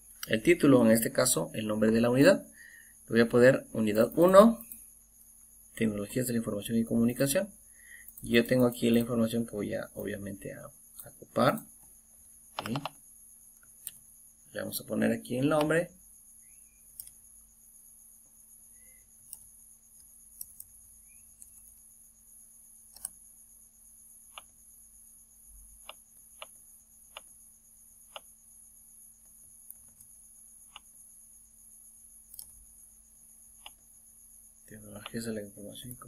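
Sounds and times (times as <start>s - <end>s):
keyboard and mouse clicks: 12.5s - 13.0s, 13.8s - 14.0s, 16.9s - 17.2s, 22.9s - 23.2s, 24.3s - 24.5s, 25.8s - 27.4s, 28.1s - 28.3s, 32.3s - 32.6s, 33.6s - 33.8s.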